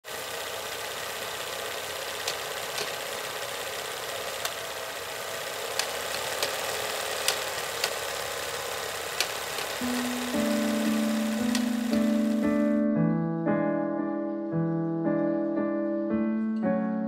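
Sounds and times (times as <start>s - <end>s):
film projector whirring: 0.0s - 12.8s
sharp clicks and pops: 2.2s - 3.0s, 5.7s - 6.6s, 7.2s - 8.0s, 9.2s - 12.2s.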